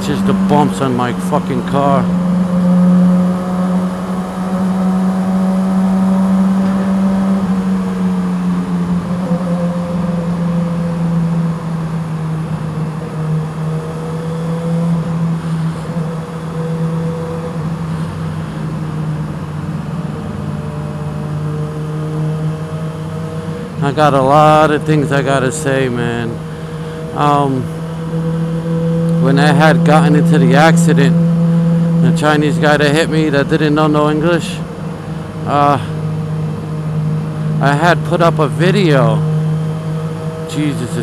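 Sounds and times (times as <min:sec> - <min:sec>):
motorcycle engine cruising in tunnel: 0:00.0 - 0:41.0.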